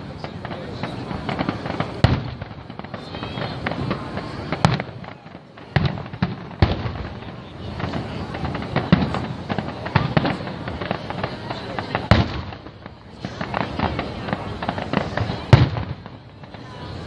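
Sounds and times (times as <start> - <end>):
fireworks bangs and crackling: 0.0 - 17.0
sharp firework booms: 0.0 - 17.0.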